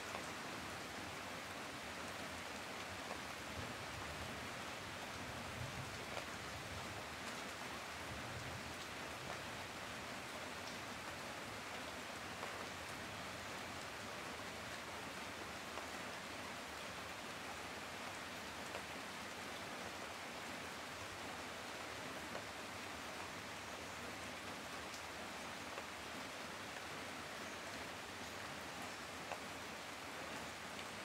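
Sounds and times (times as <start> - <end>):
steady rain hiss: 0.0 - 31.0.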